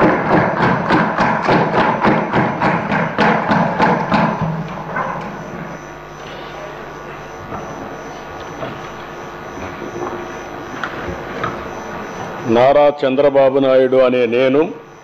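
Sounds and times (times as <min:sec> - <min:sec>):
desk thumping: 0:00.0 - 0:06.2
large hall background noise: 0:00.0 - 0:15.0.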